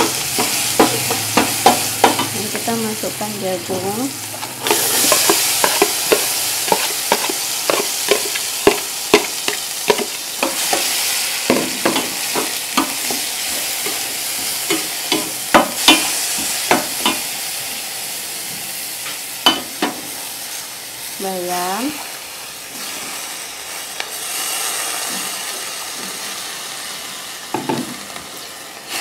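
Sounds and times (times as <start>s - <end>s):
corn sizzling in hot oil: 0.0s - 29.0s
spatula scraping a metal pan: 4.6s - 10.9s.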